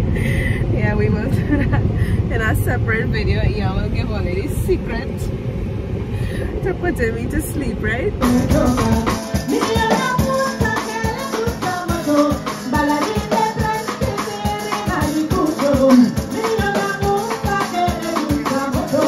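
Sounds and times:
woman singing into microphone: 8.1 - 19.0
drum kit: 8.2 - 19.0
strummed guitars: 8.2 - 19.0.

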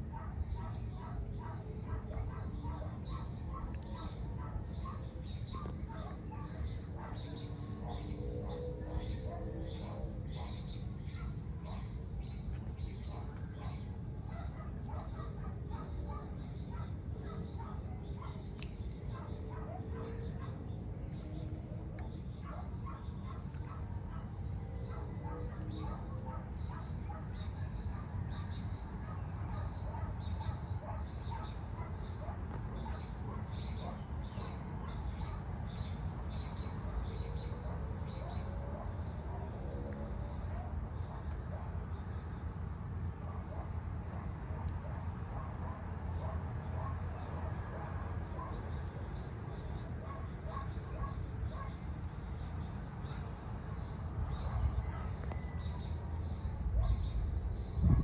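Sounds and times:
high insect drone: 0.0 - 58.0
distant gliding bird calls: 0.1 - 41.6
small birds chirping: 0.4 - 8.2.

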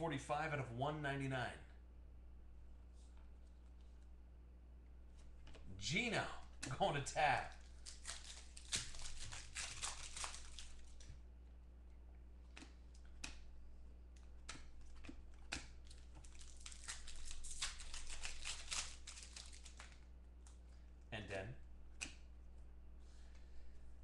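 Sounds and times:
low steady hum: 0.0 - 24.0
foil wrapper crinkling and tearing: 7.3 - 11.1, 15.8 - 20.1.

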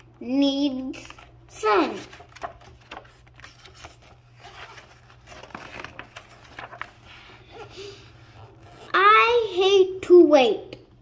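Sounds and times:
book pages being flipped: 0.7 - 9.0.

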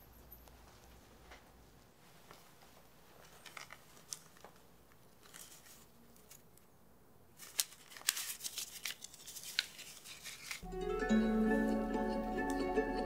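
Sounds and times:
banknotes rustling: 2.2 - 6.7, 7.3 - 10.6
crisp paper snaps: 7.4 - 10.6.

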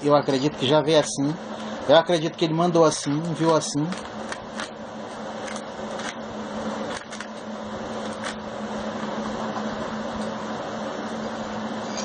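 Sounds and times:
low hum and hiss: 0.0 - 12.0.

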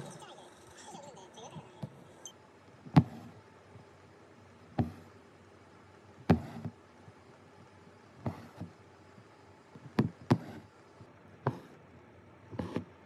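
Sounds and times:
needle punching through fabric: 2.8 - 3.4, 4.7 - 5.1, 6.2 - 6.8, 9.8 - 10.7, 12.5 - 13.0.

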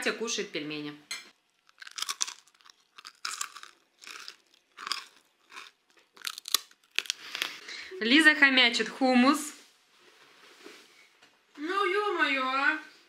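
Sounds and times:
person chewing food: 1.4 - 7.6.

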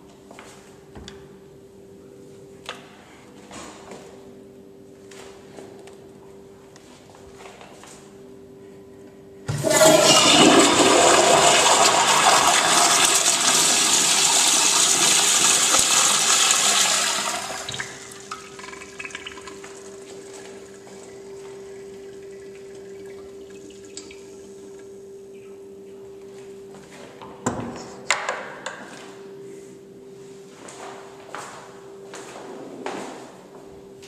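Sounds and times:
toilet flushing: 9.5 - 24.4.

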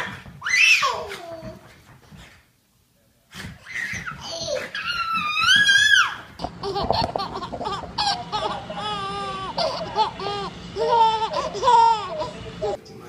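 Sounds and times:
baby giggling and squealing: 3.7 - 12.8.

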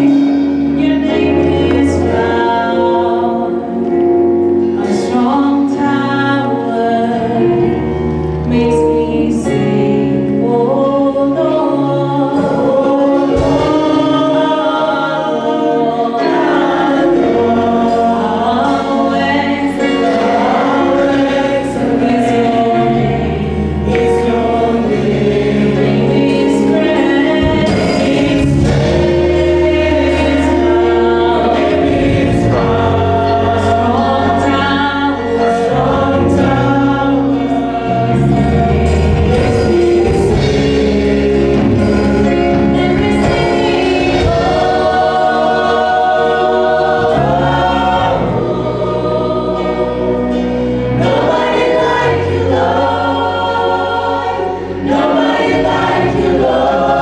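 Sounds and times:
choir singing: 0.0 - 57.0
instrumental backing: 0.0 - 57.0
low bass notes: 17.1 - 57.0.

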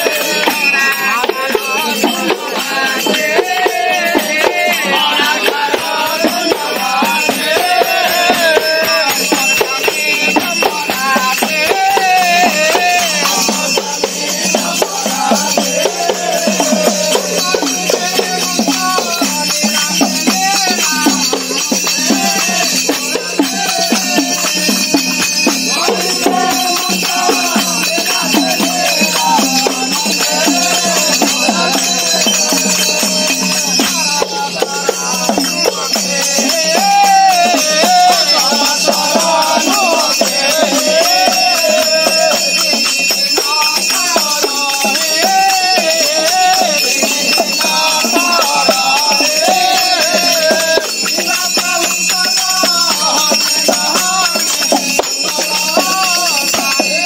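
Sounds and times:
hand cymbals jingling: 0.0 - 57.0
men singing devotional song: 0.0 - 57.0.

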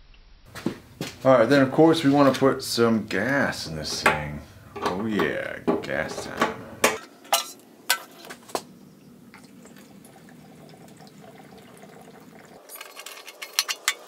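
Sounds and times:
fuel trickling through funnel: 9.2 - 13.9
clattering: 12.7 - 14.0.

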